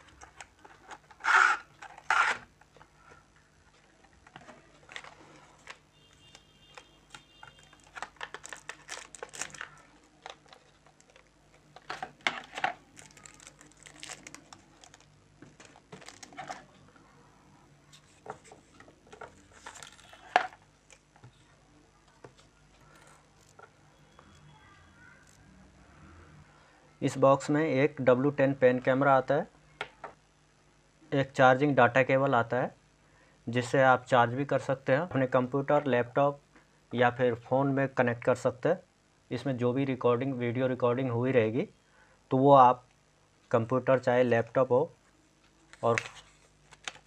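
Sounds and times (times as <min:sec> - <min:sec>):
paper and plastic rustling: 0:03.7 - 0:16.7, 0:17.9 - 0:21.4, 0:45.7 - 0:47.0.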